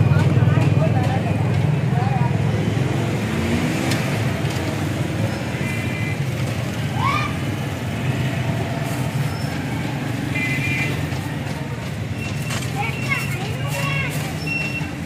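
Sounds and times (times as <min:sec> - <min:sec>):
street traffic rumble: 0:00.0 - 0:15.0.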